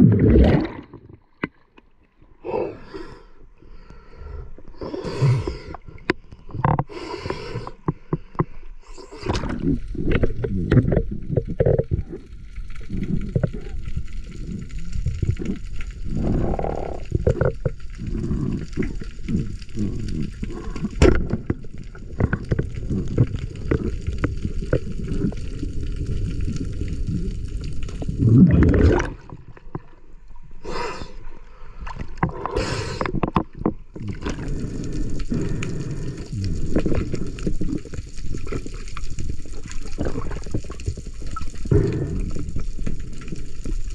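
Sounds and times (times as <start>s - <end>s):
water gurgling and bubbling underwater: 0.0s - 3.0s, 3.7s - 43.9s.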